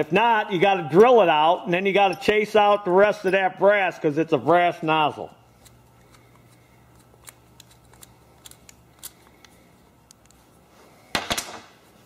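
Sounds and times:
screwdriver clicks and scrapes: 5.6 - 10.4.

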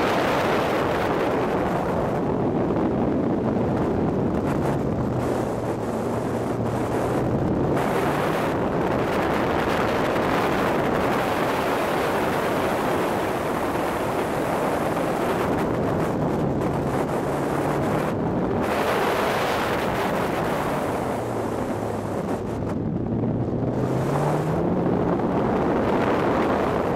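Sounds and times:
road noise: 0.0 - 26.9
wind buffeting microphone: 0.0 - 26.9
car engine revving hard: 23.4 - 26.9.

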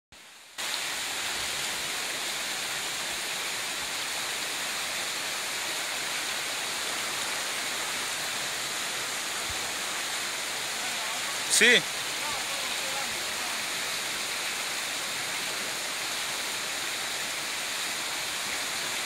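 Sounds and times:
stream rushing over rocks: 0.2 - 19.0.

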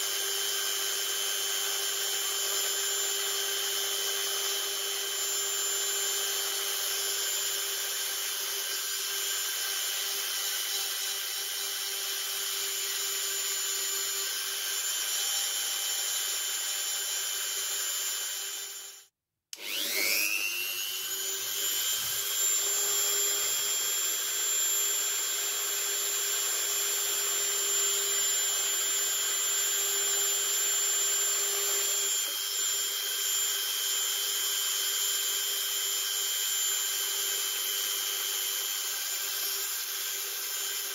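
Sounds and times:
rotary tool whining on wood: 0.0 - 40.9.

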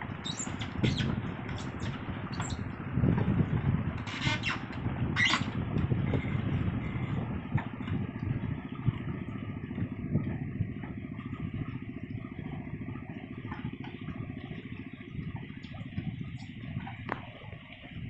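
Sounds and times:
engine running with rapid pulse: 0.0 - 18.0.

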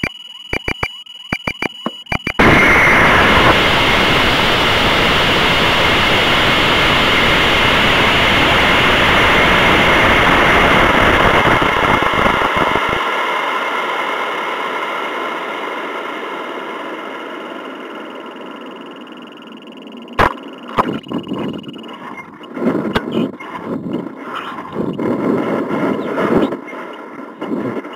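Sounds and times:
wind rushing over camera: 2.4 - 14.9, 20.8 - 27.9
low rocket rumble: 2.4 - 27.9.

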